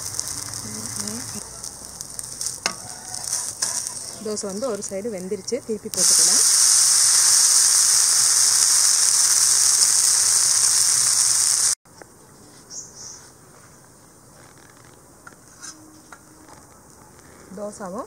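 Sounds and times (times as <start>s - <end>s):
food sizzling on a hot pan: 0.0s - 11.8s
faint outdoor background: 0.0s - 18.0s.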